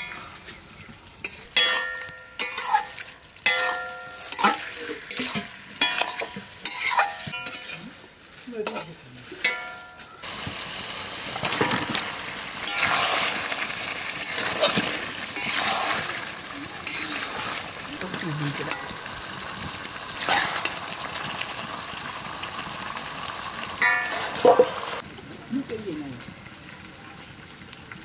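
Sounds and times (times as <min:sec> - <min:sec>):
curry sizzling: 0:00.0 - 0:28.0
spatula scraping metal pan: 0:01.2 - 0:08.0, 0:12.6 - 0:13.5, 0:14.2 - 0:16.2, 0:16.8 - 0:18.9.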